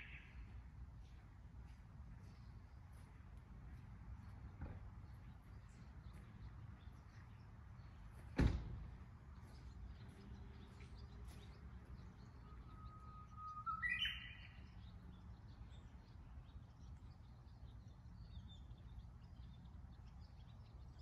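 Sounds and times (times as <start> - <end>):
high bird chirps: 10.1 - 16.0
bird singing whistled song: 12.2 - 15.0.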